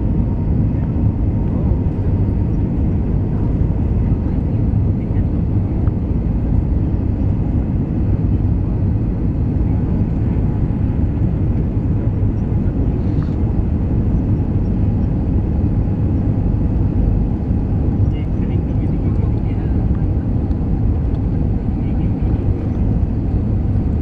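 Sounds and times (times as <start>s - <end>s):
airplane engines rumbling: 0.0s - 24.0s.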